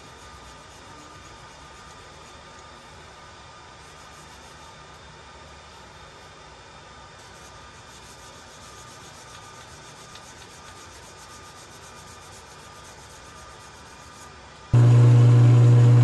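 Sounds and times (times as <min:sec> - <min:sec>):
sanding sponge rubbing wood: 0:00.0 - 0:02.4, 0:03.8 - 0:04.8, 0:07.2 - 0:14.3
faint steady whine: 0:00.0 - 0:16.0.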